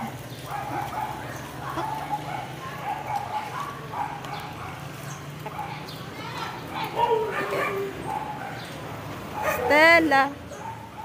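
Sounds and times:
small dogs yipping and whining: 6.8 - 8.6.

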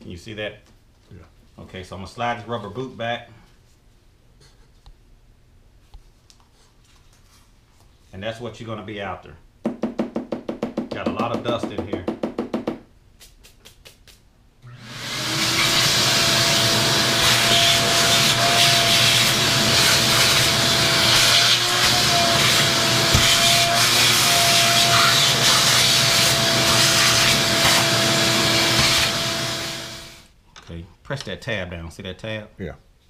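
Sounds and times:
vacuum cleaner running: 14.6 - 30.3.

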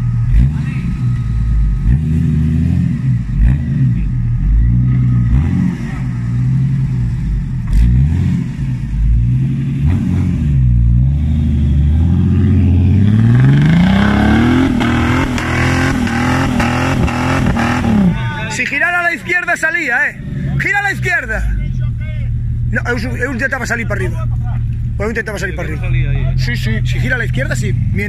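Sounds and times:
off-road vehicle engine revving: 0.0 - 28.0.

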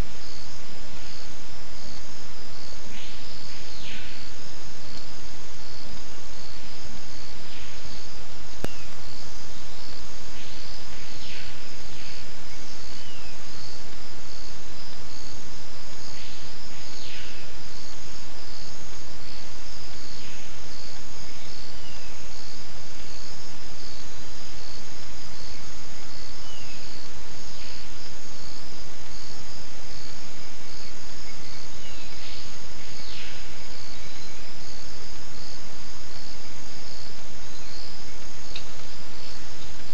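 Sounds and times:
constant hiss: 0.0 - 39.9
insects chorus pulsing: 0.0 - 39.9.

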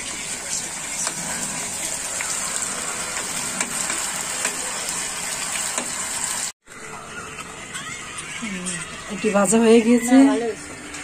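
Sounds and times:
potatoes sizzling in hot oil: 0.0 - 6.5.

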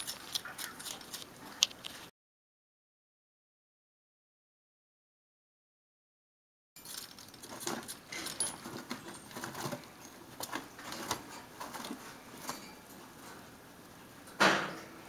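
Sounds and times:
guinea pigs crunching apple: 0.0 - 2.1, 6.8 - 13.5.

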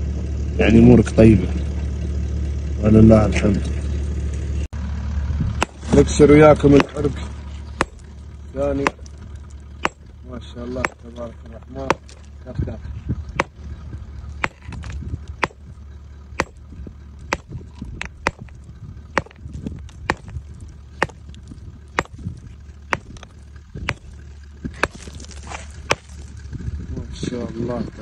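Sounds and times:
low steady hum: 0.0 - 28.0
hammer striking rock: 5.6 - 6.0, 6.6 - 7.1, 7.8 - 9.2, 9.8 - 10.1, 10.7 - 11.2, 11.8 - 12.3, 13.4 - 13.6, 14.4 - 15.7, 16.4 - 16.6, 17.3 - 26.2.

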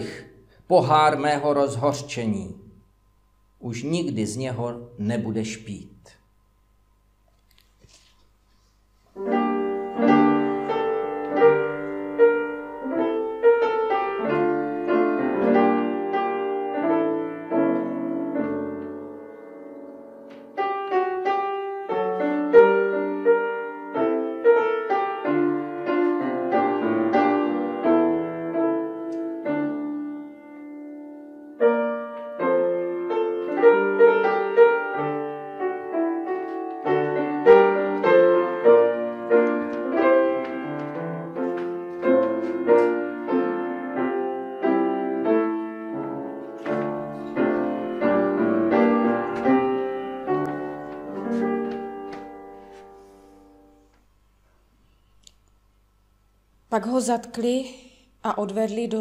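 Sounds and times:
slow chordal piano piece: 9.2 - 54.0.

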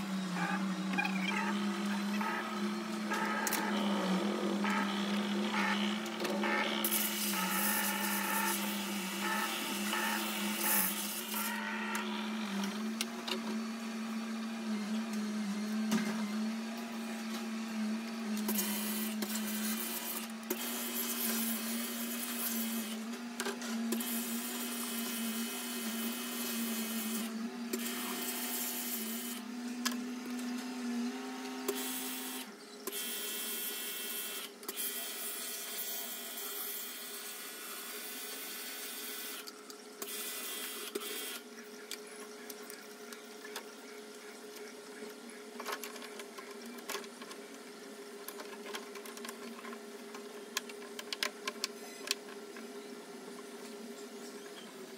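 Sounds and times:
pressure washer motor humming: 0.0 - 13.0.

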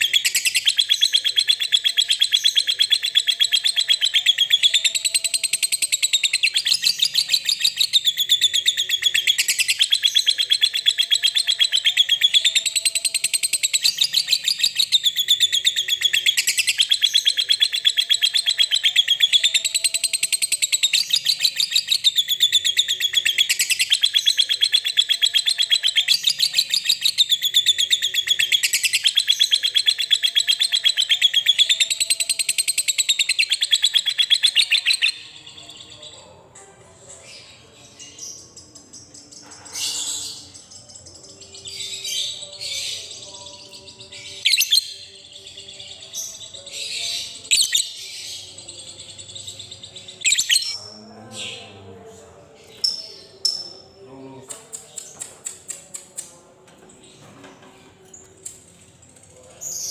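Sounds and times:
lovebird high-pitched chatter: 0.0 - 35.3, 46.3 - 48.6, 50.2 - 50.8.

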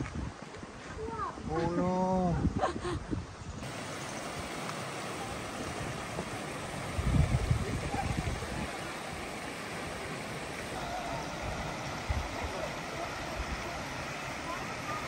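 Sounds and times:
creek running over rocks: 3.6 - 15.0.

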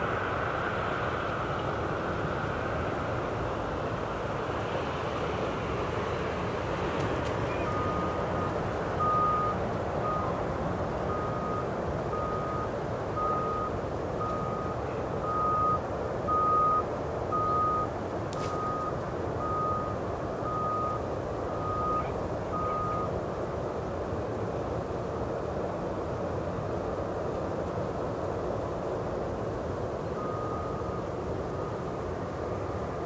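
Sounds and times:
reversing alarm beeping: 7.5 - 10.4, 11.1 - 17.9, 18.5 - 23.2, 30.2 - 31.8.

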